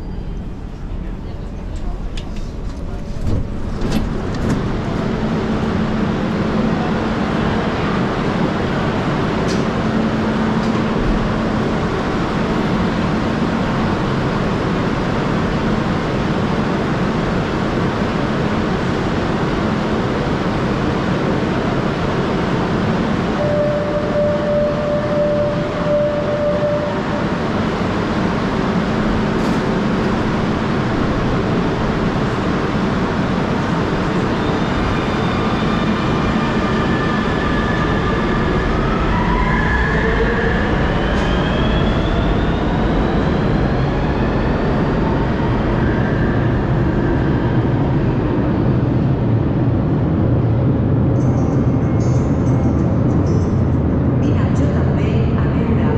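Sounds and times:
train equipment hum and rush: 0.0 - 55.9.

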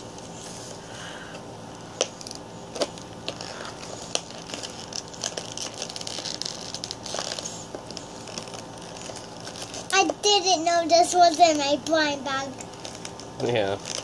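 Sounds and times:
plastic packaging crinkling: 2.0 - 10.0, 12.6 - 14.0.

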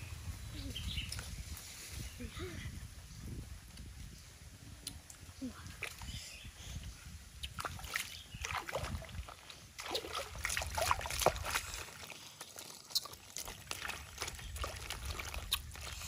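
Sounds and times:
stream water trickling: 7.4 - 16.0
basket splashing in water: 7.6 - 15.9.

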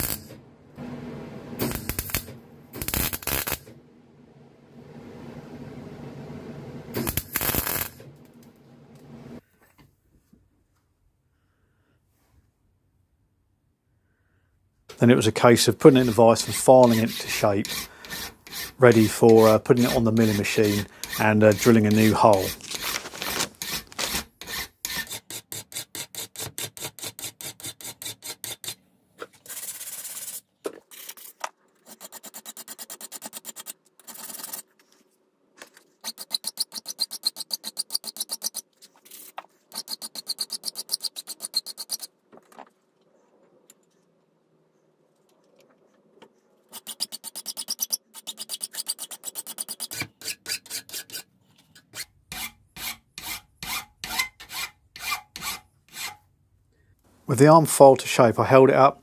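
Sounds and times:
hand file rasping on steel: 15.6 - 23.0, 23.6 - 28.8, 36.0 - 38.6, 39.7 - 42.1, 46.7 - 56.2.

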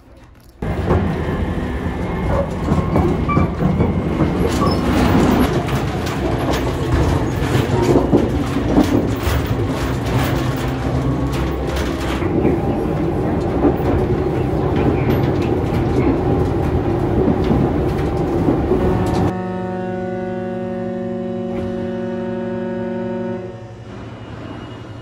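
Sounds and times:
train rumbling at speed: 0.6 - 25.0
clicks and rattles: 2.3 - 19.3.

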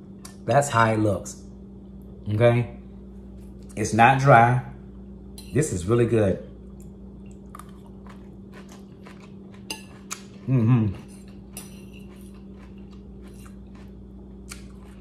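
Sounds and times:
crunchy chewing of coleslaw: 6.7 - 15.0
person humming: 10.4 - 11.0
fork clinking on plate: 11.1 - 12.2.

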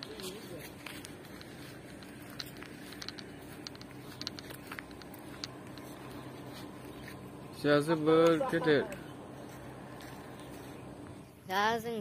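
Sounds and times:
light clicks and ticks: 0.0 - 7.1.

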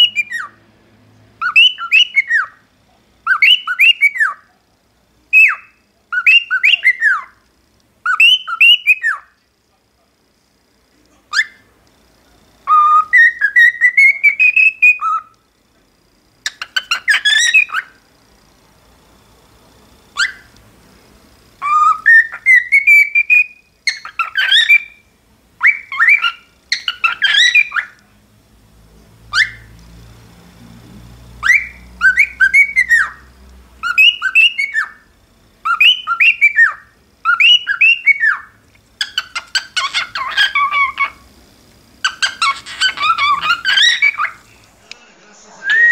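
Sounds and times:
cockatiel whistling: 0.0 - 0.6, 1.4 - 2.6, 3.2 - 4.5, 5.3 - 7.4, 8.0 - 9.4, 11.3 - 11.7, 12.6 - 15.3, 16.5 - 18.0, 20.2 - 20.5, 21.6 - 25.0, 25.6 - 28.0, 29.3 - 29.7, 31.4 - 33.2, 33.8 - 35.0, 35.6 - 41.2, 42.0 - 44.4, 45.6 - 45.9.

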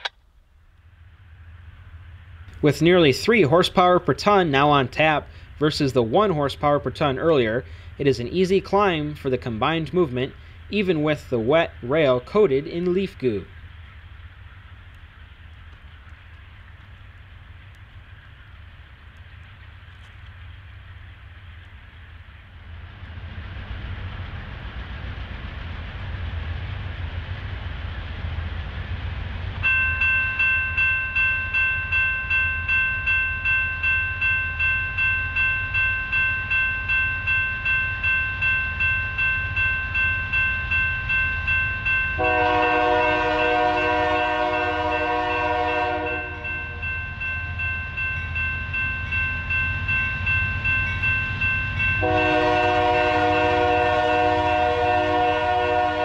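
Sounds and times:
crossing warning bell ringing: 29.6 - 56.0
locomotive horn blast: 42.2 - 46.8, 52.0 - 56.0.

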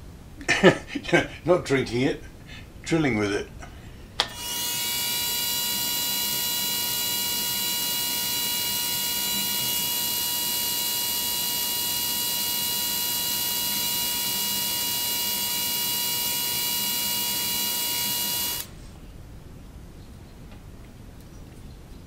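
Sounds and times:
milling machine spindle whine: 4.3 - 18.7.

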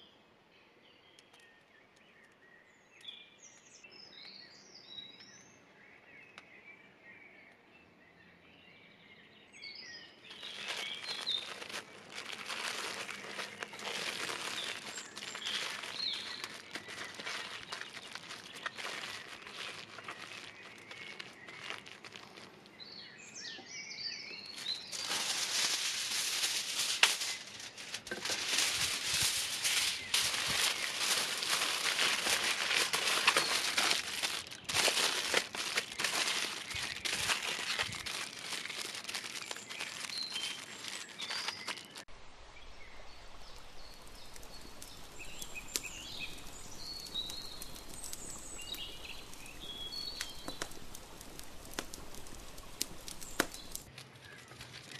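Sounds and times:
outdoor background noise: 0.0 - 54.9
birds chirping: 0.7 - 54.7
aluminium foil crinkling: 10.2 - 22.9, 24.4 - 42.1, 44.1 - 54.9.

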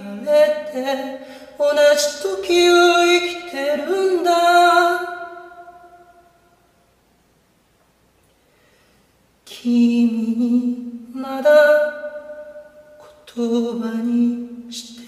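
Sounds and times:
person singing unaccompanied: 0.0 - 6.3, 9.5 - 15.0.

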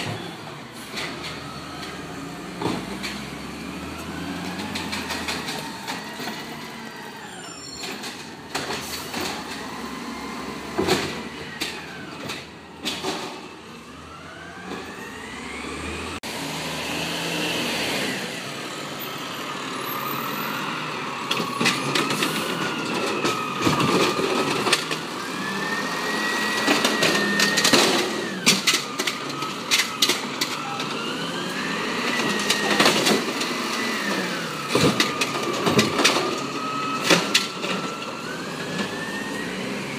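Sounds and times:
hydraulic whine: 0.0 - 18.4
garbage truck engine revving: 0.0 - 39.9.

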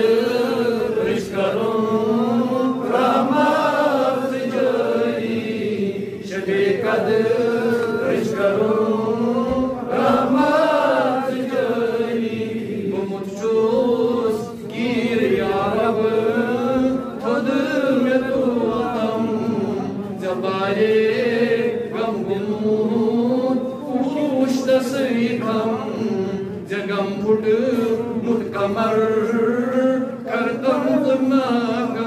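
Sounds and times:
man chanting: 12.8 - 32.0.

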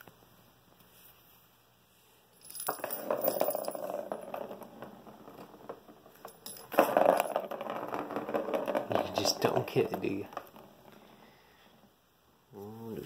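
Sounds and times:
plastic ball rattling around track: 2.7 - 10.9.

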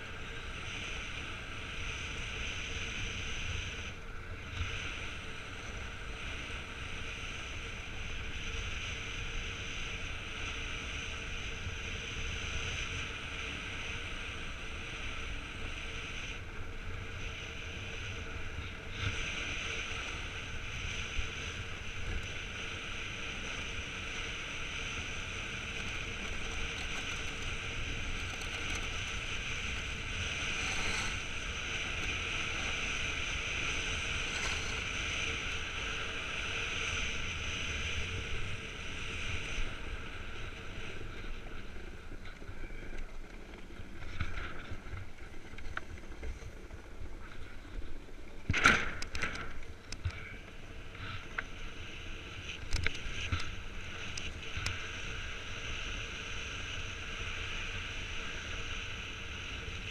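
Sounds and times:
wind rumble on microphone: 0.0 - 59.9
runners hissing over ice: 17.0 - 37.2.

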